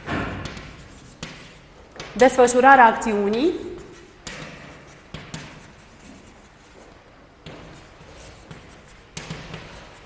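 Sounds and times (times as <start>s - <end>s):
chalk tapping on board: 0.4s - 2.2s, 3.3s - 10.0s
chalk scratching on blackboard: 0.4s - 2.6s, 3.3s - 10.0s.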